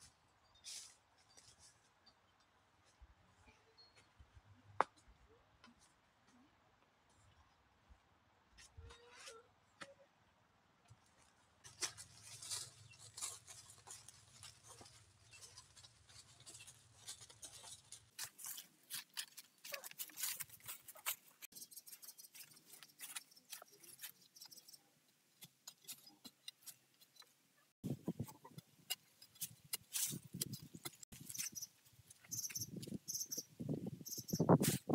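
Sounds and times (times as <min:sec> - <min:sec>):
footsteps on dry leaves: 0:11.6 - 0:21.5.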